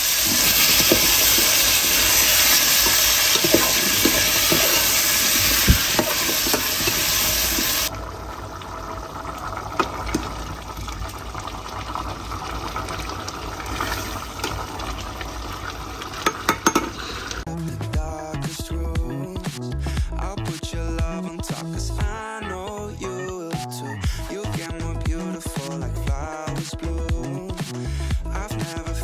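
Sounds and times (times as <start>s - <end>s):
metal ladle scraping a pot: 0.0s - 7.9s, 16.2s - 17.4s
potatoes sizzling in a pot: 0.0s - 17.5s.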